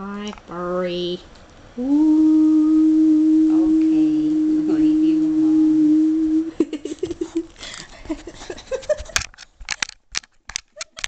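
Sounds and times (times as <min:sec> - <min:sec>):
steady held hum: 0:00.0 - 0:09.7
quick giggling vocal sounds: 0:06.5 - 0:09.2.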